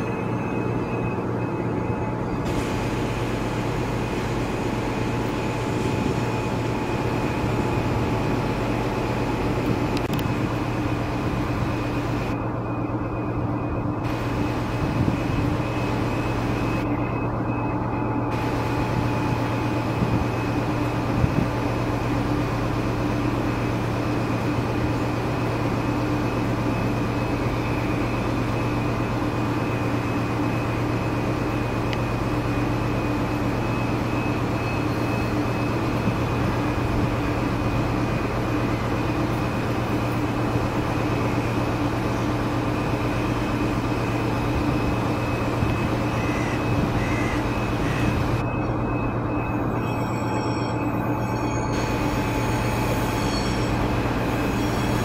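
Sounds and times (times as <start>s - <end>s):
diesel engines droning: 0.0s - 55.0s.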